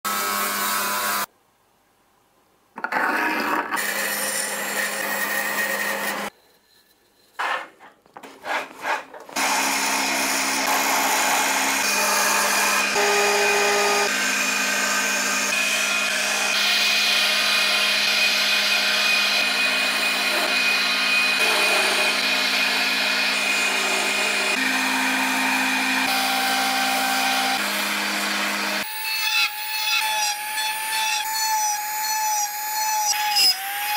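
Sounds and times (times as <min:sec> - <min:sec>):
table saw cutting wood: 0:02.9 - 0:06.3, 0:08.4 - 0:33.9
chisel cutting spinning wood: 0:07.4 - 0:33.9
wood lathe running: 0:09.4 - 0:31.1.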